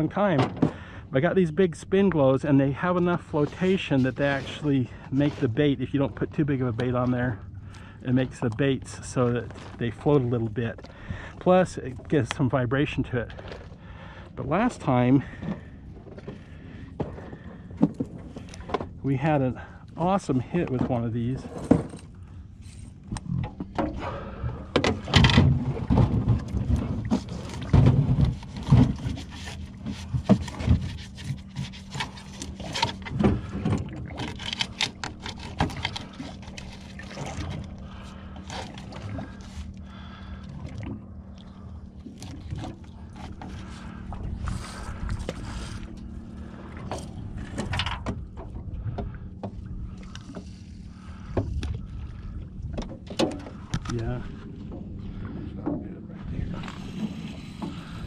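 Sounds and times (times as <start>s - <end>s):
steady low hum: 0.0s - 58.0s
gear knocking and scraping: 24.7s - 39.6s.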